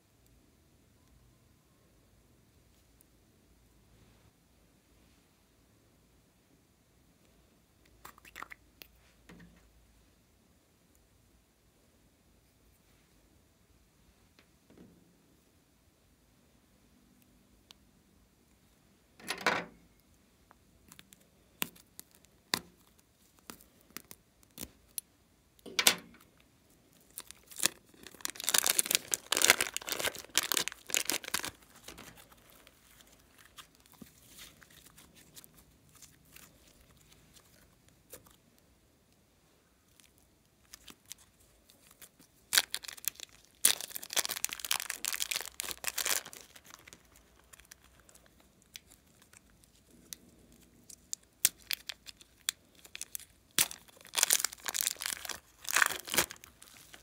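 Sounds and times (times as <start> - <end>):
slime crackling and tearing: 20.8 - 25.0, 26.9 - 38.4, 39.9 - 57.0
slime squelching: 27.0 - 38.4, 50.8 - 57.0.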